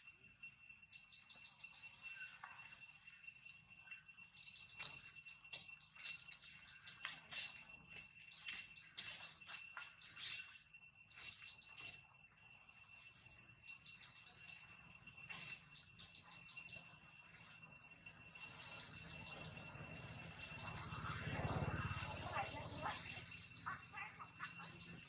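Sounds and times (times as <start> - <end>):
faint clicks: 3.4 - 3.6
high-pitched chirping: 18.4 - 19.6, 20.4 - 21.3, 21.9 - 25.0.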